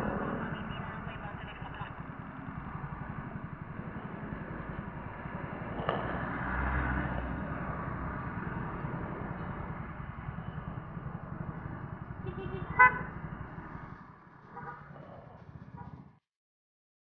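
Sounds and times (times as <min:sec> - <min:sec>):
motorcycle engine idling: 0:00.0 - 0:05.6, 0:07.4 - 0:16.2
street traffic: 0:00.0 - 0:16.2.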